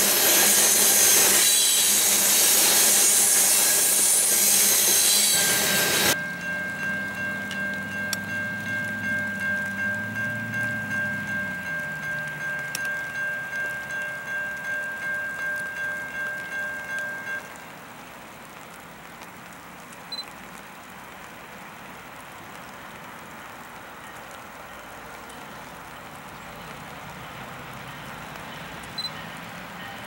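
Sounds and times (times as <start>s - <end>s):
railroad crossing bell ringing: 0.0s - 17.8s, 27.8s - 30.0s
steady hiss: 0.0s - 30.0s.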